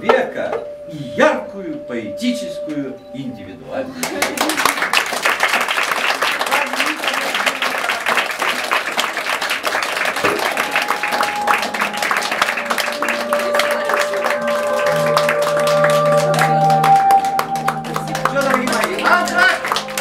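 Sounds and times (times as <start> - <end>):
long held instrument notes: 0.0 - 4.7, 9.4 - 20.0
audience applauding: 4.0 - 20.0.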